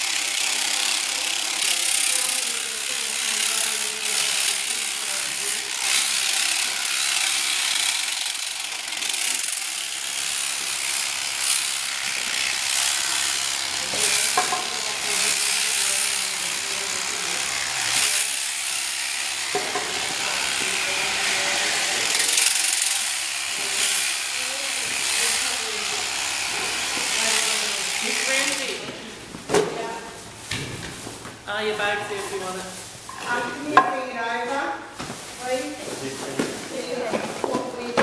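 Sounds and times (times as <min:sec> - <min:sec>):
electric shearing handpiece buzzing: 0:00.0 - 0:31.0.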